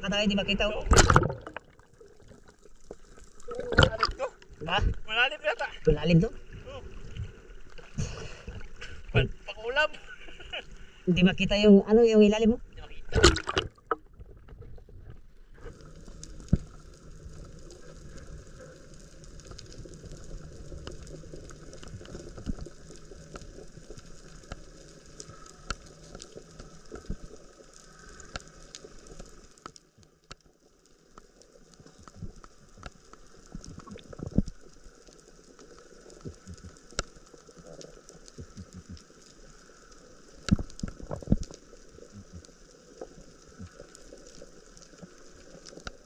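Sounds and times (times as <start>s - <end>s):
underwater hiss: 6.5s - 9.2s
irregular crackling clicks: 15.6s - 46.0s.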